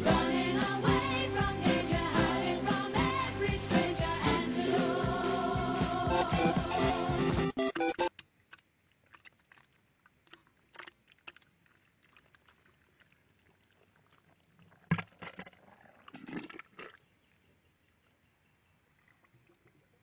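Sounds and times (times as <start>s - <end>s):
wet scraping and sloshing: 8.5s - 17.1s.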